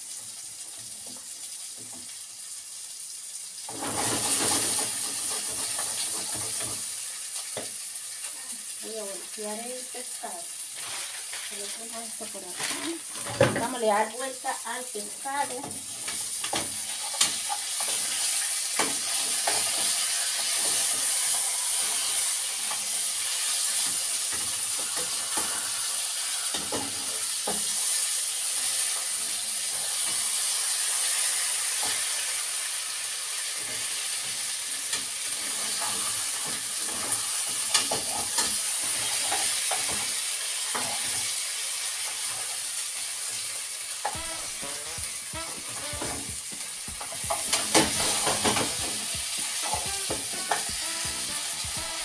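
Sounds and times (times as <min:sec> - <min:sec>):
fish sizzling in a pan: 0:00.0 - 0:52.0
utensil clicking against pan: 0:44.0 - 0:52.0.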